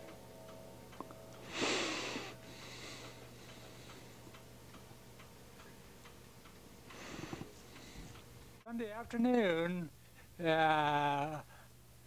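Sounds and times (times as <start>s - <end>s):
low hum: 0.0s - 8.6s
faint steady ticking: 0.0s - 10.6s.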